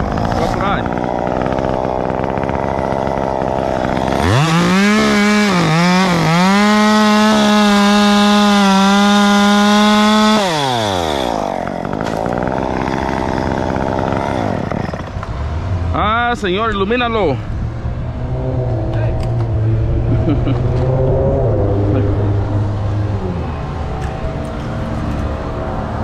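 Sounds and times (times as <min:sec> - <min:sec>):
chainsaw idling and revving: 0:00.0 - 0:16.6, 0:24.0 - 0:26.0.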